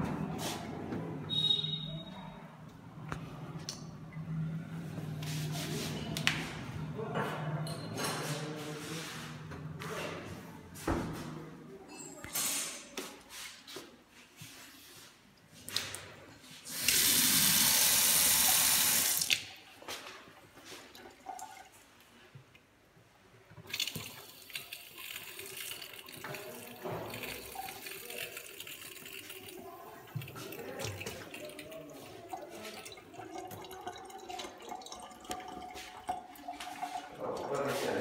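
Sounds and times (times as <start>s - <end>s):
tap water gushing into sink: 16.7s - 19.5s, 23.5s - 38.0s.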